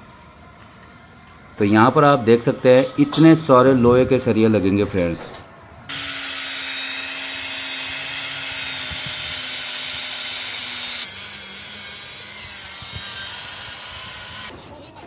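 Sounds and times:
abrasive cutter grinding steel: 5.9 - 14.5.

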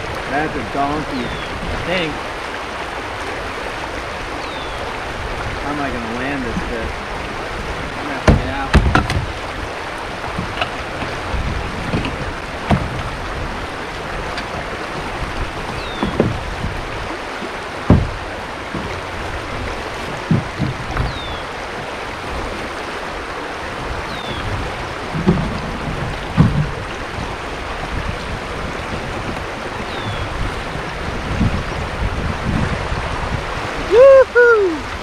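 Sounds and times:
river current rushing: 0.0 - 35.0
dull knocks: 8.2 - 9.5, 10.1 - 21.9, 24.2 - 29.6.

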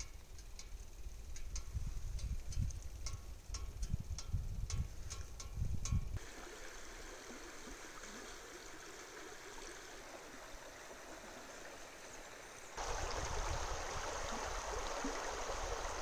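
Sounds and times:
stream running over rocks: 6.2 - 16.0.

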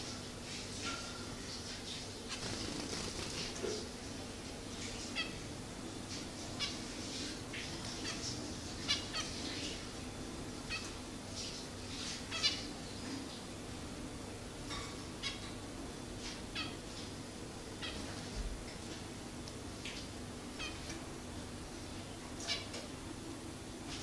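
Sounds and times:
faint steady hum: 0.0 - 24.0
finches chirping: 2.2 - 3.6, 7.5 - 9.9.

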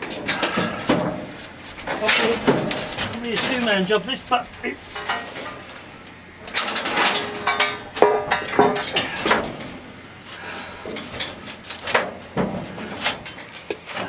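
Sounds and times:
steel knocking and scraping on stone: 0.0 - 5.8, 6.4 - 9.8.

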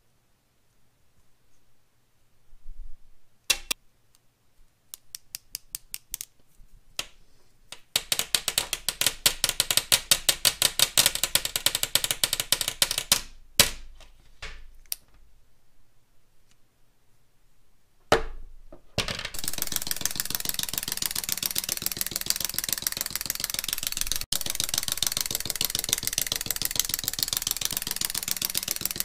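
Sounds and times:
plastic sticks clicking on hard surface: 4.9 - 6.4, 7.0 - 13.8, 19.2 - 29.0.

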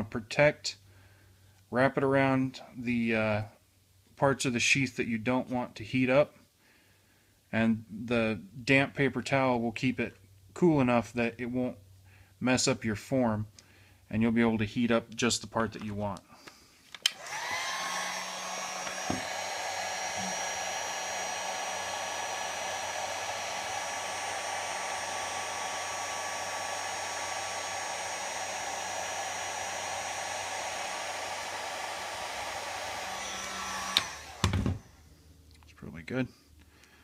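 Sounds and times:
heat gun switch click: 17.0 - 17.7, 33.8 - 34.6
heat gun blowing air: 17.0 - 35.2.

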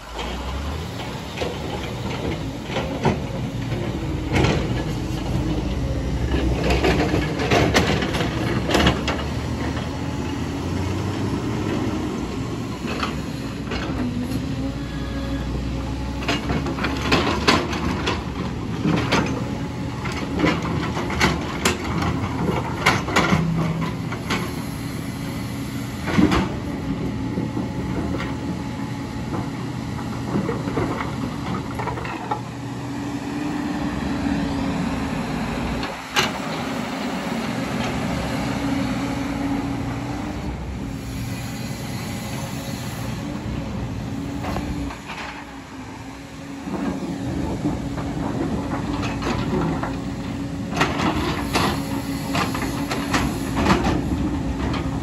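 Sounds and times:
diesel engines running: 0.0 - 55.0.

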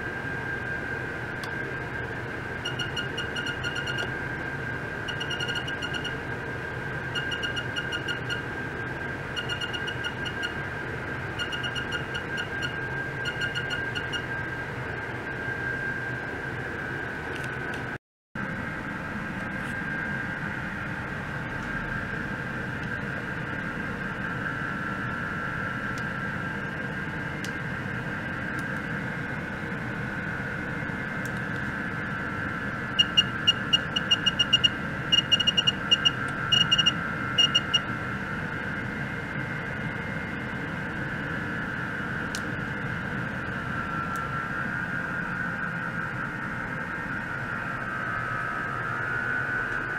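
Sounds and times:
short high electronic beeps: 2.6 - 4.1, 5.1 - 6.2, 7.2 - 8.4, 9.4 - 10.6, 11.4 - 14.2, 33.0 - 37.8.

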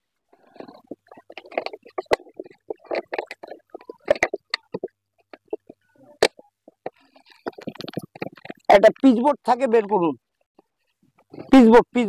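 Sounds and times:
plastic bottle crackling: 0.4 - 8.7.

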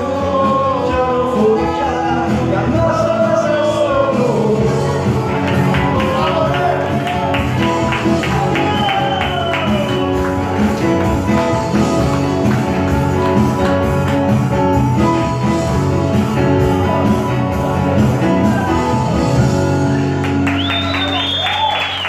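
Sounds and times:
man singing: 0.0 - 10.2
hand percussion beat: 5.1 - 15.2
high whistle: 19.9 - 22.0.

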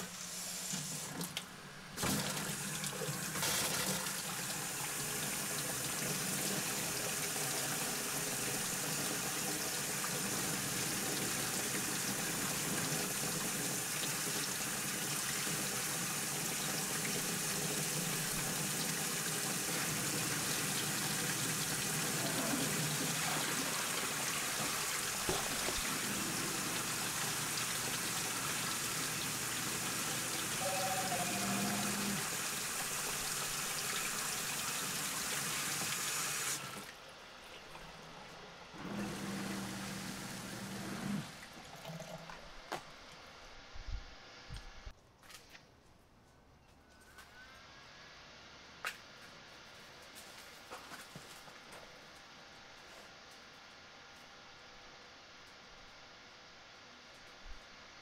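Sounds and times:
faucet running into a plastic sink: 2.0 - 36.9.

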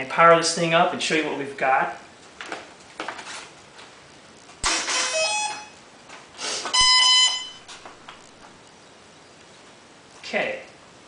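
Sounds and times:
speed controller beeps: 4.9 - 5.8, 6.7 - 7.7.

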